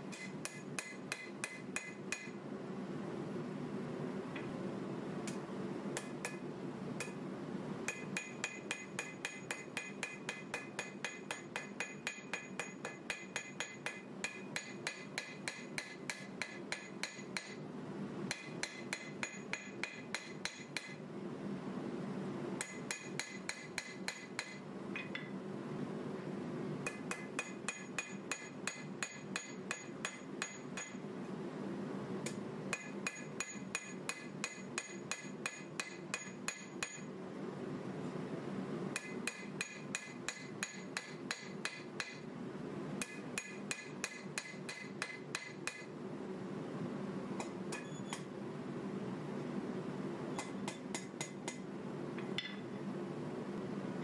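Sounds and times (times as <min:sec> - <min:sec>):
steady low hum: 0:00.0 - 0:54.0
hammer striking steel on anvil: 0:00.1 - 0:02.4, 0:06.0 - 0:06.4, 0:07.0 - 0:07.2, 0:07.9 - 0:17.6, 0:18.3 - 0:21.0, 0:22.6 - 0:25.3, 0:26.8 - 0:31.0, 0:32.2 - 0:37.1, 0:39.0 - 0:42.2, 0:43.0 - 0:45.9, 0:50.4 - 0:51.6, 0:52.4 - 0:52.6.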